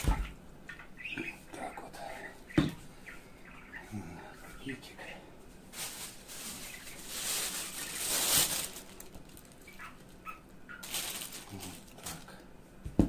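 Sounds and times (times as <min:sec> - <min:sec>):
plastic bag rustling: 0:05.7 - 0:12.4.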